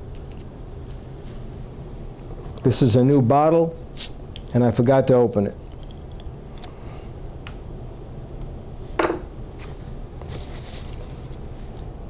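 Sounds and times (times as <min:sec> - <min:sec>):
bottle handling sounds: 0:09.0 - 0:09.3.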